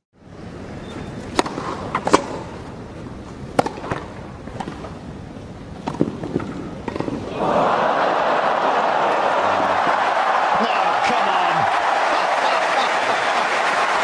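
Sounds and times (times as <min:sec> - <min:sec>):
tennis ball hits: 0:01.3 - 0:02.5, 0:03.6 - 0:04.9, 0:05.8 - 0:07.3.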